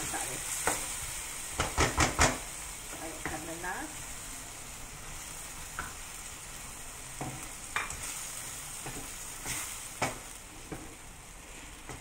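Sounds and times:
food sizzling in a wok: 0.0s - 12.0s
spatula knocking and scraping pan: 1.6s - 2.4s, 7.2s - 8.1s, 8.8s - 10.9s.

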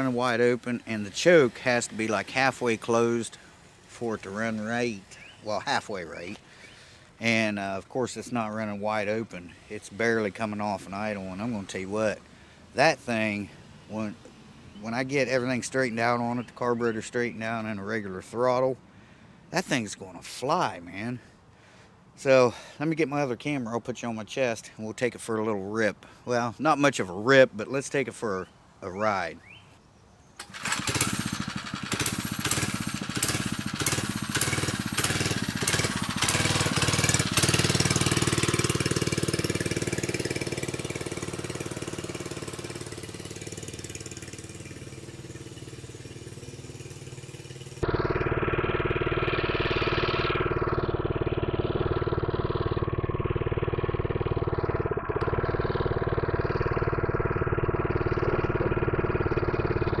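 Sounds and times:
small engine pulsing unevenly: 30.4s - 60.0s.

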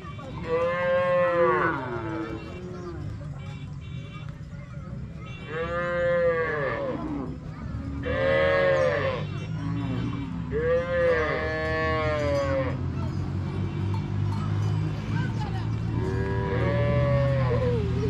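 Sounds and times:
herd background noise: 0.0s - 18.0s
cattle mooing: 5.5s - 7.2s, 8.0s - 9.2s, 16.0s - 17.9s.

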